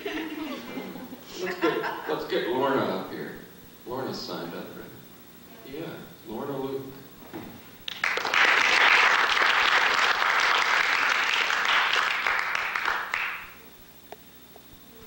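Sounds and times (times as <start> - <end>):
audience applauding: 7.9 - 13.6.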